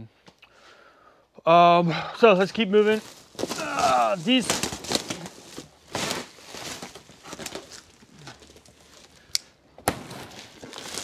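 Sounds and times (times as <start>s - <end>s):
plastic wrap rustling: 2.8s - 9.2s, 10.1s - 11.0s
cardboard boxes scuffing and knocking: 4.2s - 7.9s.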